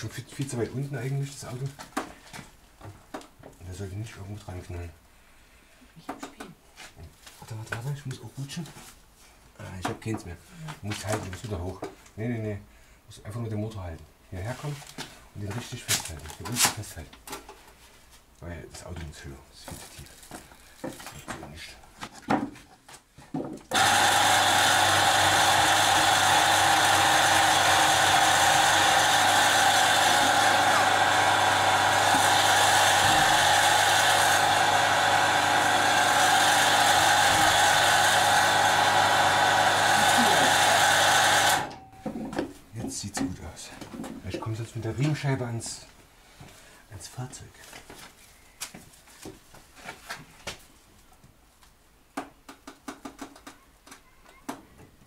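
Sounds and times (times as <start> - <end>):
car lift electric motor running: 23.7 - 41.8.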